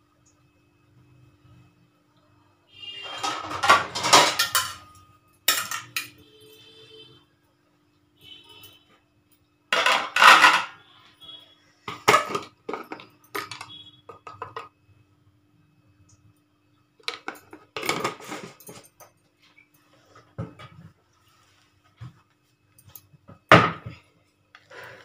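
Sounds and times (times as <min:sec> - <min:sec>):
faint steady hum: 0:00.0 - 0:25.0
metal pots clattering: 0:03.0 - 0:06.2, 0:09.7 - 0:10.8, 0:11.9 - 0:14.7, 0:17.0 - 0:19.1.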